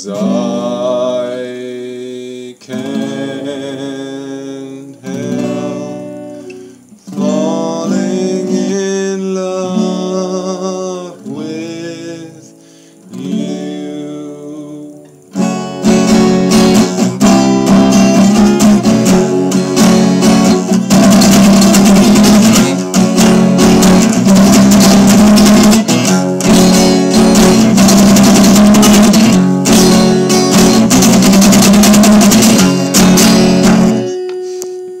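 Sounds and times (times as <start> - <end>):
man singing: 0.0 - 15.2
acoustic guitar strumming: 0.0 - 35.0.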